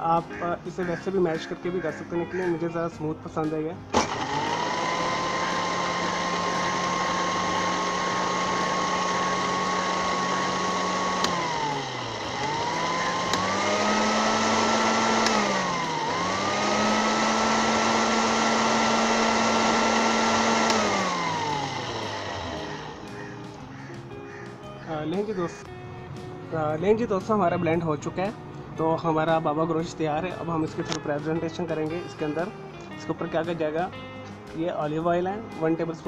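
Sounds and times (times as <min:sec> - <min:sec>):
blender motor whine: 0:03.9 - 0:23.9.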